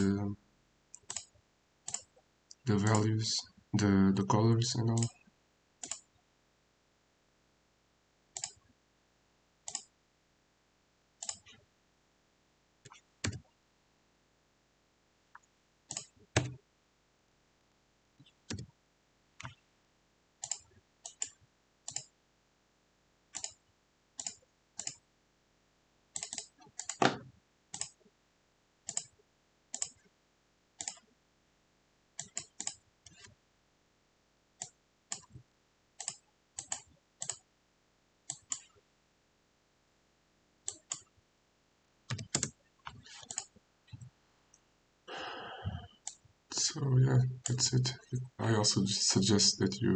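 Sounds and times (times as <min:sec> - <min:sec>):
computer mouse and keyboard clicks: 0:01.0 - 0:01.3, 0:05.8 - 0:06.1, 0:08.4 - 0:08.6, 0:11.2 - 0:11.6, 0:12.9 - 0:13.5, 0:15.9 - 0:16.6, 0:18.2 - 0:18.7, 0:19.4 - 0:19.6, 0:20.4 - 0:22.1, 0:23.3 - 0:23.6, 0:24.2 - 0:25.0, 0:26.2 - 0:28.0, 0:28.9 - 0:29.2, 0:29.8 - 0:30.0, 0:30.8 - 0:31.0, 0:32.2 - 0:33.4, 0:34.6 - 0:35.4, 0:36.0 - 0:37.4, 0:38.3 - 0:38.8, 0:40.7 - 0:41.1, 0:42.1 - 0:44.1.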